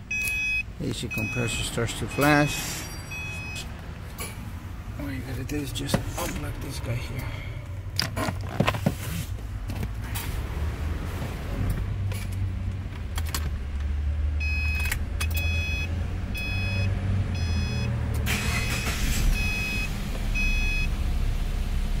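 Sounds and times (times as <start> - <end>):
car warning chime beeps: 0.0 - 3.8, 14.4 - 21.0
car engine cranking and idling: 0.0 - 22.0.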